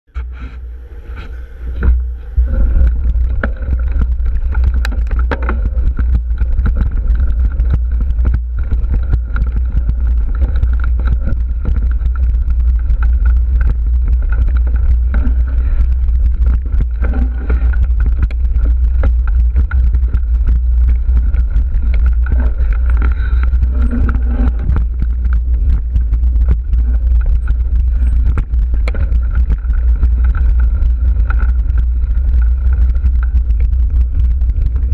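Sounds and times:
wind buffeting microphone: 1.0 - 34.9
bike clicks and rattles: 1.7 - 34.9.

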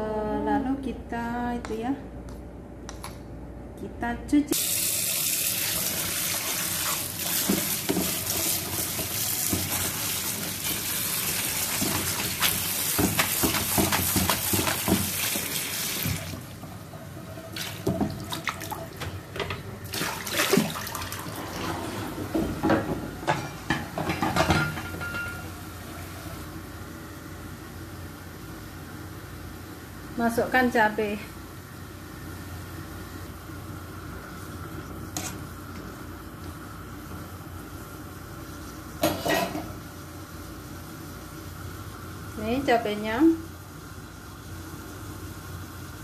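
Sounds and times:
kitchen tap running: 4.6 - 22.8.

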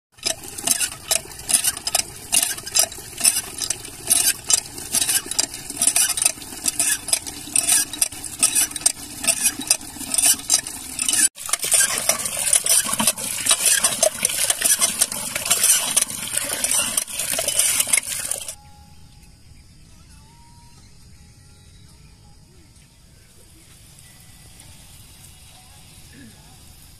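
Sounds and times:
hand pump water gushing into bucket: 0.1 - 18.6.

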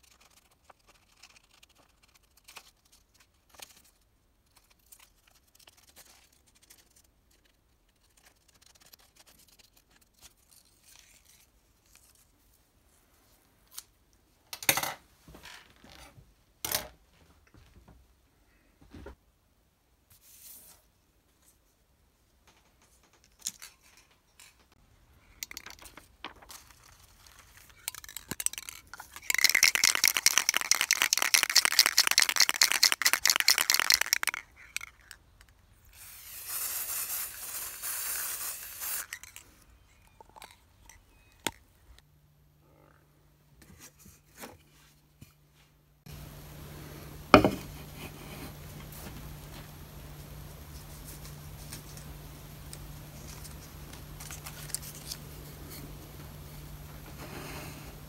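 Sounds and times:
aerosol spray can hissing: 36.0 - 39.1
low steady hum: 39.2 - 58.0.

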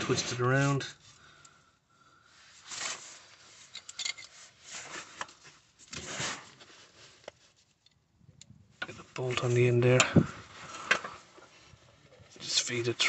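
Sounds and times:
rubbing and rustling handling noise: 2.3 - 8.0, 8.7 - 13.0.

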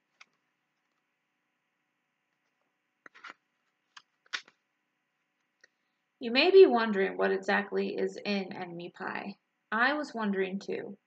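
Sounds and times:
paper rustling page turn: 3.0 - 4.6.

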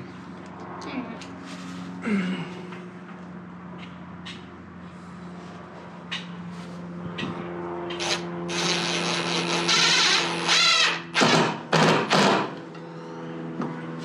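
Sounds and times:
cordless drill running: 8.0 - 11.3.

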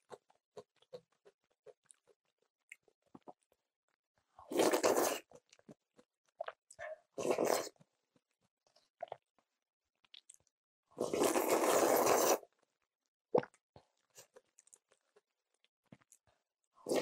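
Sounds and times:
loud slurp of noodles: 4.5 - 5.4, 7.2 - 7.8, 11.0 - 12.5.

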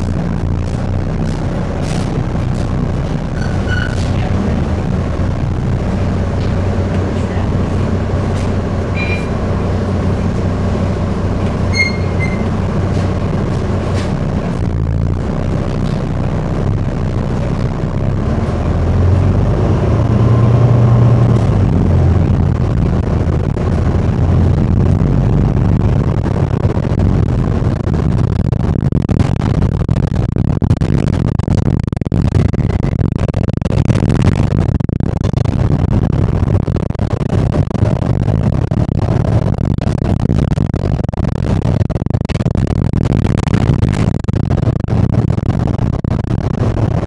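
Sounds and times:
road noise: 0.0 - 29.7
bus engine drone: 0.0 - 47.0
short high tones: 8.9 - 9.4, 11.6 - 12.6.

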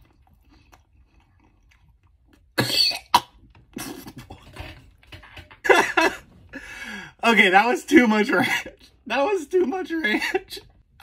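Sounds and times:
man coughing and spluttering: 2.5 - 4.6
man laughing: 10.0 - 10.6.

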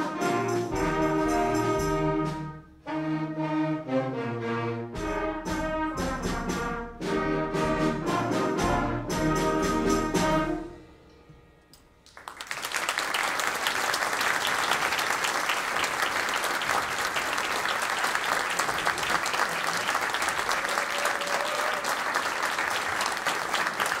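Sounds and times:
audience applauding: 12.0 - 24.0.

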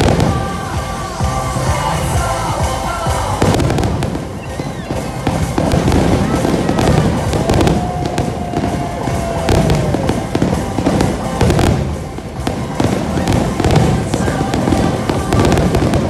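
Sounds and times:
fireworks bursting: 0.0 - 16.0
music playing: 0.0 - 16.0.

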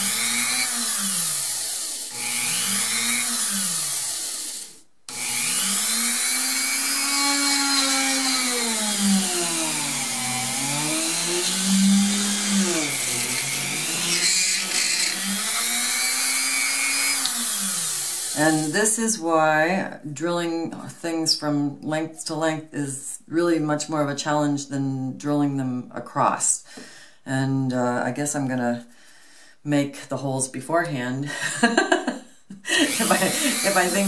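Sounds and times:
drill press motor running: 0.0 - 18.4, 32.9 - 34.0.

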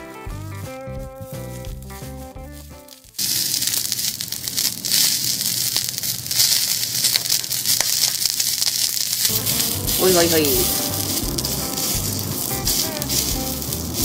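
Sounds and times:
background music: 0.0 - 3.1, 9.3 - 14.0
sausages sizzling on a griddle: 0.9 - 14.0.

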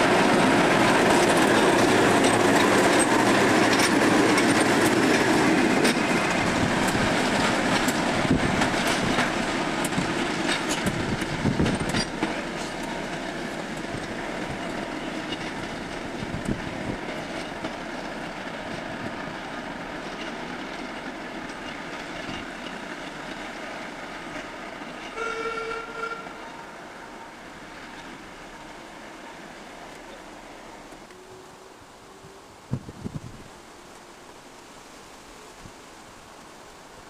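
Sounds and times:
wheels clattering over rail joints: 0.0 - 26.6
diesel locomotive engines running: 0.0 - 32.7
short horn note: 25.2 - 26.4.

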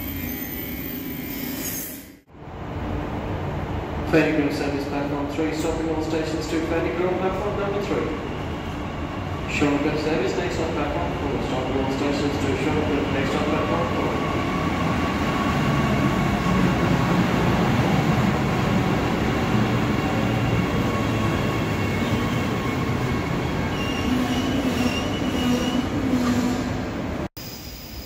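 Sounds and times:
high wheel squeal: 0.0 - 2.2, 21.0 - 26.7.

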